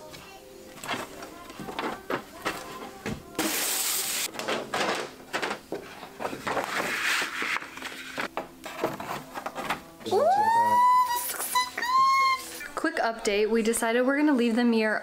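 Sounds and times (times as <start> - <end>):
paper and board rustling: 0.7 - 9.9.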